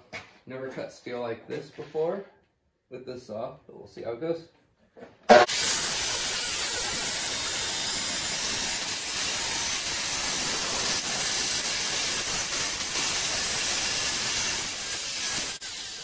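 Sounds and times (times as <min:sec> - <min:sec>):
chop saw grinding steel: 0:05.3 - 0:16.0.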